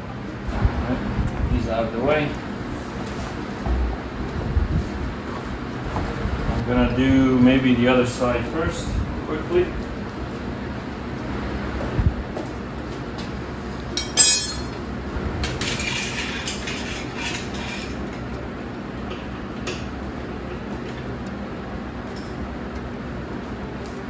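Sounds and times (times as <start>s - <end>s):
steady low hum: 0.0s - 24.0s
metal clinking and jingling: 14.0s - 14.8s
sharp metallic clank: 14.0s - 14.8s.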